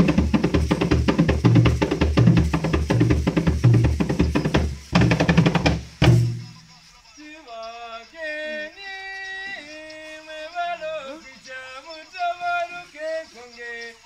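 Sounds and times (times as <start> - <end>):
loud fast drumming: 0.0 - 6.6.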